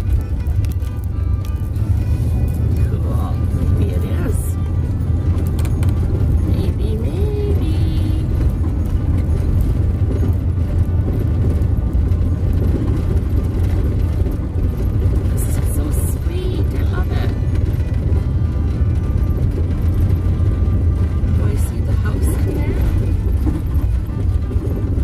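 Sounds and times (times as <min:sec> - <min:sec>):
van engine and tyres rumbling: 0:00.0 - 0:25.0.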